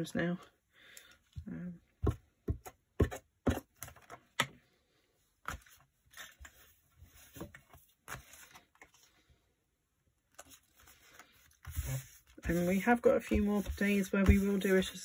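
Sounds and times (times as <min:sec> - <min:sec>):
paper rustling: 0:05.5 - 0:09.2, 0:10.3 - 0:15.0.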